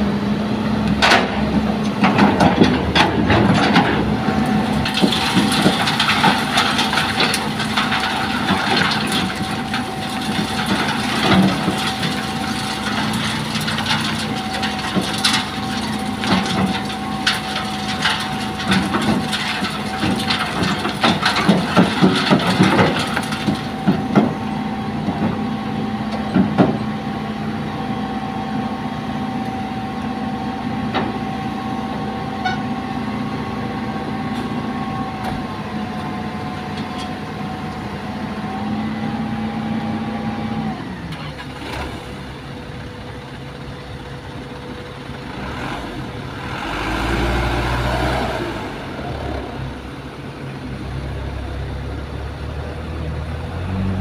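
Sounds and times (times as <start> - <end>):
excavator engine and hydraulic whine: 0.0 - 54.0
truck diesel engine revving: 44.9 - 54.0.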